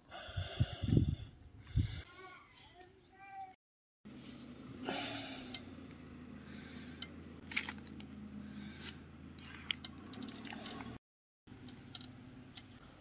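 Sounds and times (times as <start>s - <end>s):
steady low hum: 4.1s - 13.0s
foil and plastic crinkling: 7.5s - 8.0s.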